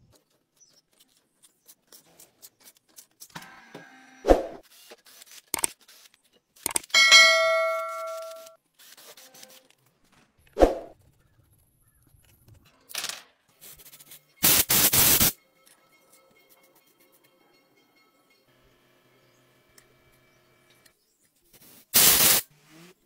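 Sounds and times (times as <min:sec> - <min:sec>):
bright metallic ding: 0:07.0 - 0:08.6
loud hiss: 0:14.4 - 0:15.3, 0:22.0 - 0:22.4.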